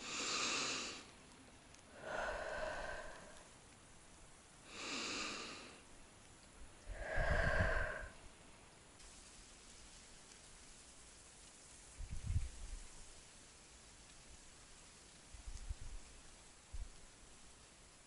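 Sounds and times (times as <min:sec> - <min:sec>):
person breathing slowly: 0:00.0 - 0:01.2, 0:01.8 - 0:03.7, 0:04.6 - 0:05.9, 0:06.8 - 0:08.4.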